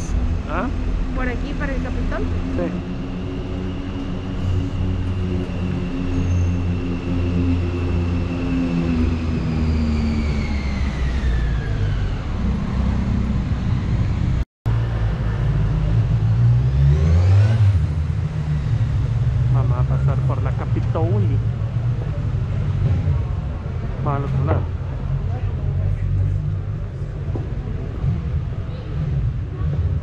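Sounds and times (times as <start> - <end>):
cars driving by: 0.0 - 30.0
vehicle accelerating: 0.0 - 30.0.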